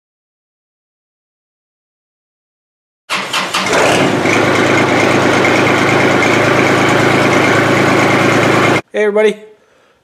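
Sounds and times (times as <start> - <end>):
tractor diesel engine starting: 3.1 - 8.8
tractor engine idling: 3.1 - 8.8.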